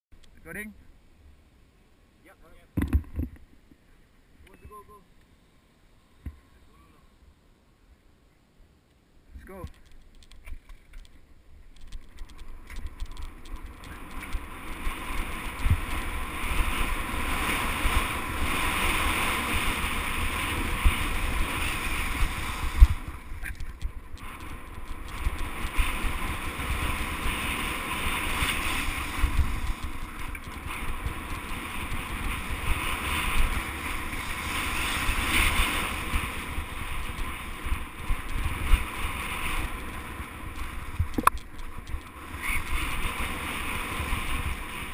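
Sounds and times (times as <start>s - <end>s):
bike tyres rolling over dirt: 9.7s - 44.9s
wind buffeting microphone: 9.8s - 44.9s.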